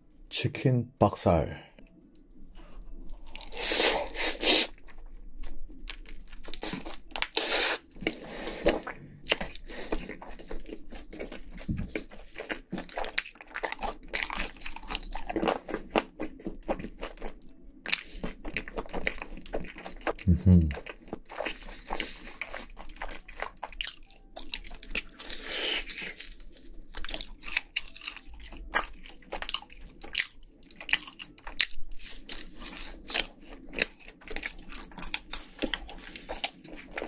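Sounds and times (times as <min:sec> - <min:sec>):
crunchy chewing: 0:03.0 - 0:37.0.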